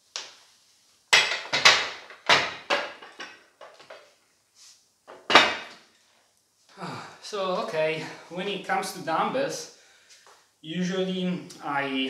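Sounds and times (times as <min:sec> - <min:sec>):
dumbbells clunking: 0:01.2 - 0:04.1, 0:05.1 - 0:05.8.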